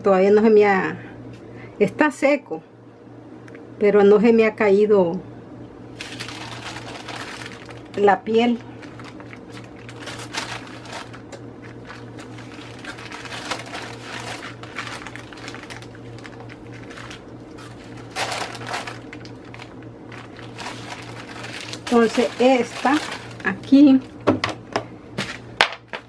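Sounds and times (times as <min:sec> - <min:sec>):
plastic sheet crinkling: 0:06.0 - 0:24.1.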